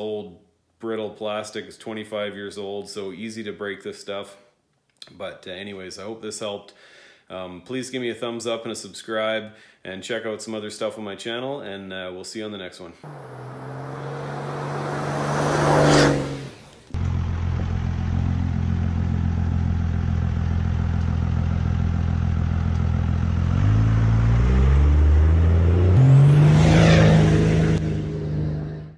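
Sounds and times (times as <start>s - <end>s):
diesel truck engine driving: 13.0s - 28.9s.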